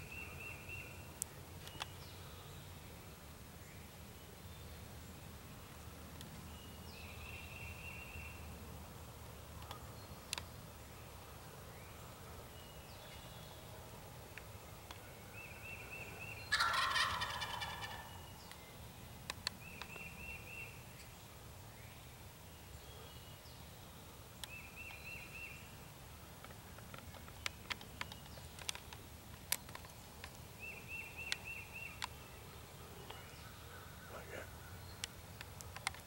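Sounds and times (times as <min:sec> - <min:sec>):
turkey gobbling: 0:16.5 - 0:18.1.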